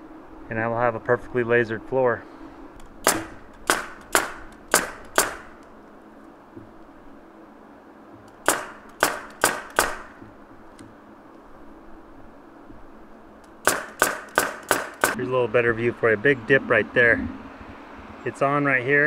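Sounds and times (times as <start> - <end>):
pneumatic nailer firing: 3.0 - 5.7, 8.3 - 10.2, 13.6 - 15.2.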